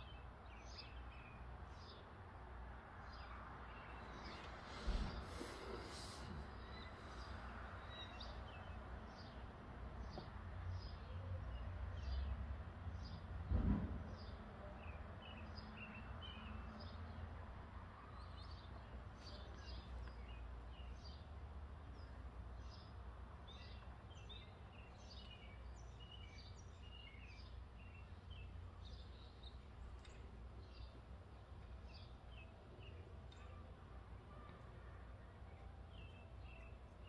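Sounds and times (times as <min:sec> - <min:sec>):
small birds chirping: 0:03.0 - 0:12.3, 0:18.0 - 0:35.0, 0:35.9 - 0:37.0.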